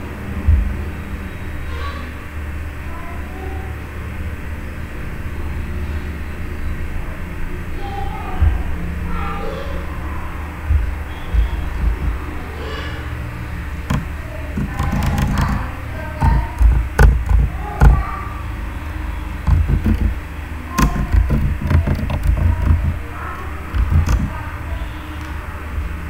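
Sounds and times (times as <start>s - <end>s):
low rumbling thumps: 0.3s - 1.0s, 8.4s - 9.1s, 10.4s - 26.0s
keyboard and mouse clicks: 11.8s - 12.2s, 13.9s - 15.6s, 16.2s - 18.0s, 19.4s - 20.2s, 20.8s - 23.0s, 23.7s - 24.4s.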